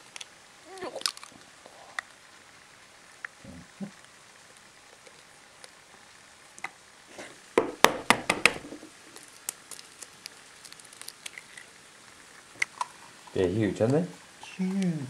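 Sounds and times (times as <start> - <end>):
egg shell crackling: 0.0 - 6.9, 7.5 - 14.5
egg shell knocking: 7.6 - 8.9.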